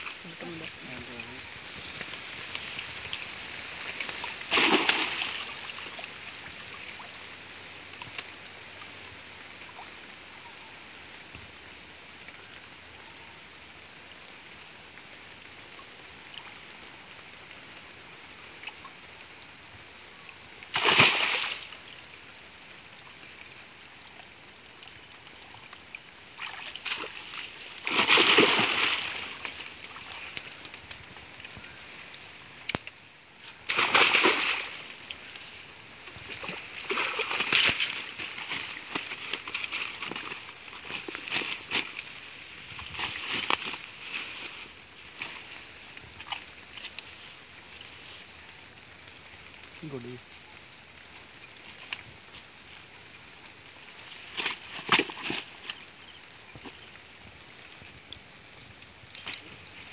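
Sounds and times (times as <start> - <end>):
splashing in shallow water: 0.0 - 7.2, 20.7 - 22.3, 24.8 - 48.0, 53.8 - 59.9
flowing water murmur: 0.0 - 59.9.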